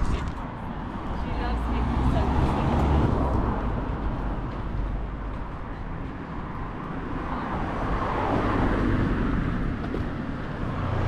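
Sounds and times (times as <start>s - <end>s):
road traffic: 0.0s - 11.0s
vehicle passing close by: 1.1s - 4.4s.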